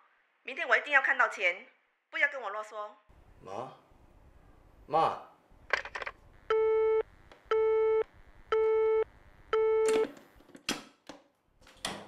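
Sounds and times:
telephone busy tone beeps: 6.5 - 10.1.

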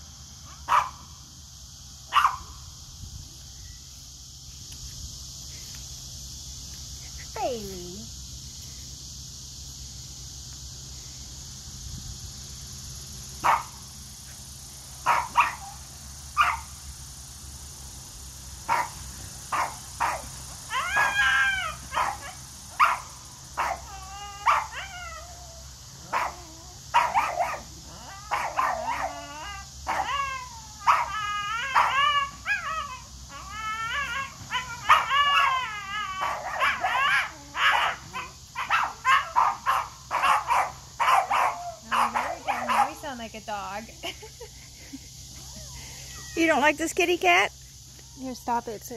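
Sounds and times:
dog yipping and yowling: 15.0 - 15.8, 19.5 - 43.0, 45.4 - 46.5.

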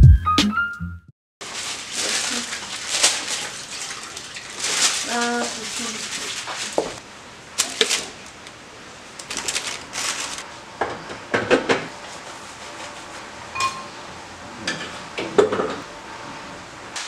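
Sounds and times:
bowls and utensils clattering: 13.6 - 14.0, 14.7 - 15.8.

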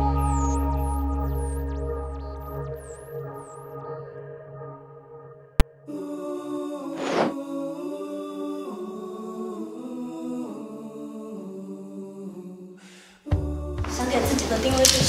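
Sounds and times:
soft music of slow held chords: 0.0 - 6.2, 13.3 - 15.0.

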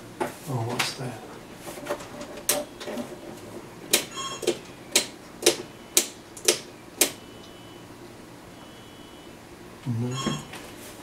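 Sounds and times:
brief electronic tone: 4.1 - 4.9, 5.7 - 6.0, 6.7 - 7.9, 8.5 - 9.4, 10.0 - 10.8.

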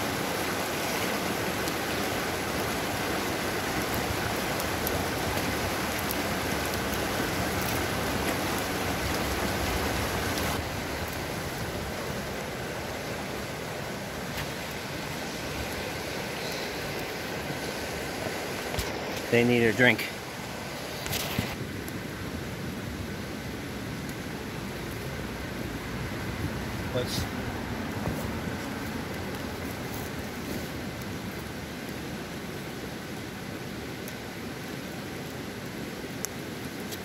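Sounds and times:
river rapids rushing: 0.0 - 21.6.

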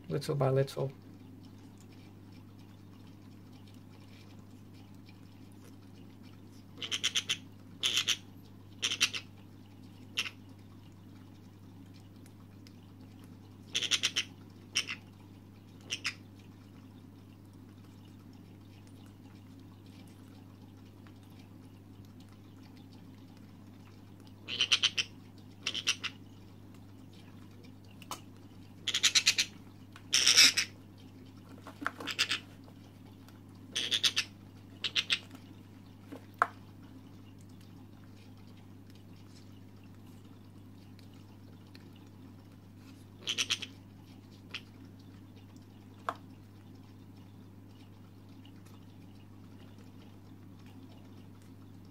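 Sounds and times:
parrot chick begging calls: 24.5 - 26.2, 33.8 - 35.2, 43.2 - 43.7.

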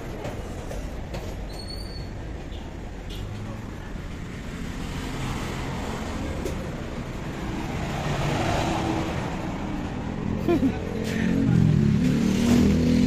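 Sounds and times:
road traffic going by: 0.0 - 13.0
vehicle passing close: 4.6 - 13.0.

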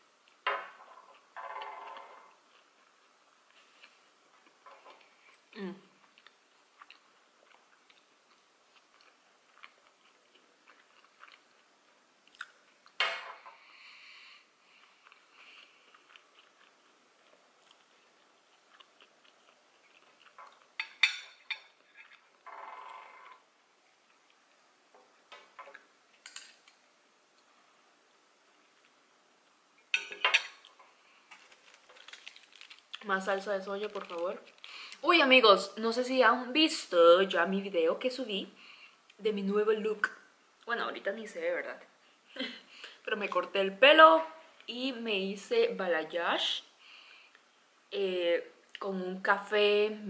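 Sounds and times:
chewing food: 1.9 - 13.0, 14.7 - 23.4, 30.5 - 33.1.

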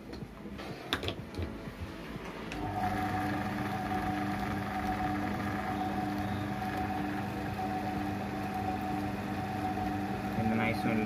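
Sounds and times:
electric motor humming: 2.4 - 11.0.

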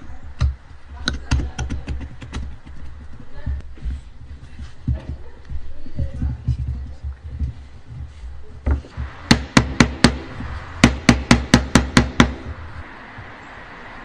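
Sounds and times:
sharp knocks on hardwood: 8.7 - 12.6.

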